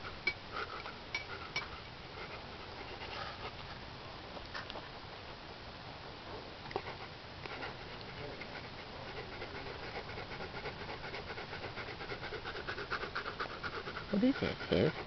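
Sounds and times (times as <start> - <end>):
dog panting: 0.5 - 3.8, 6.7 - 15.0.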